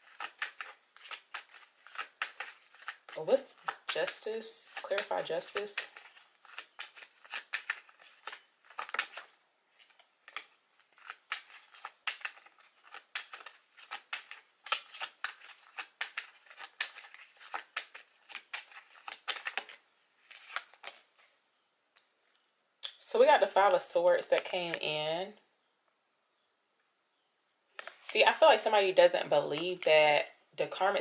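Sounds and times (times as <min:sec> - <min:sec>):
cards being shuffled: 0:00.0 - 0:21.4.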